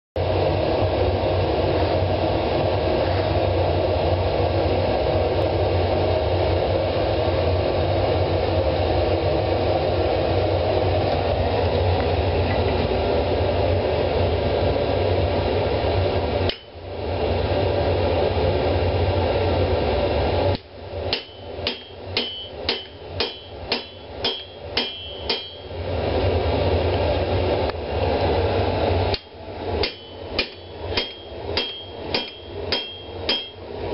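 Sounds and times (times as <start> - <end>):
hammer striking steel on anvil: 16.5 - 16.7, 20.6 - 25.8, 29.1 - 33.7.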